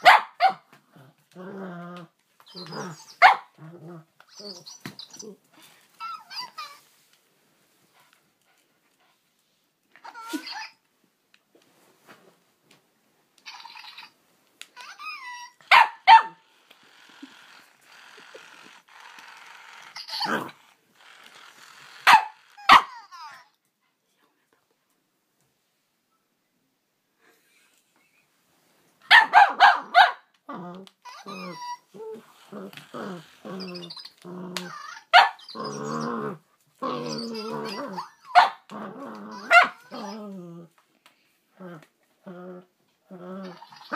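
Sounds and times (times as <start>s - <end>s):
puppy barking: 0.0s - 0.7s, 3.2s - 3.5s, 15.7s - 16.4s, 22.0s - 23.0s, 29.1s - 30.2s, 35.1s - 35.5s, 38.3s - 38.7s, 39.3s - 40.1s
dog growling: 0.9s - 4.1s, 17.0s - 22.4s, 30.5s - 40.8s, 41.6s - 43.9s
puppy whining: 1.6s - 6.9s, 10.0s - 10.8s, 14.8s - 23.4s, 30.5s - 40.7s, 41.6s - 43.9s.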